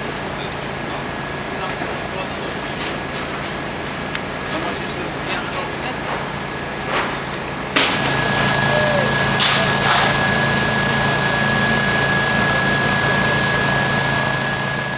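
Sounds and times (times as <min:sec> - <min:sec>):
fire engine running: 0:00.0 - 0:14.9
thin high whine: 0:07.8 - 0:14.9.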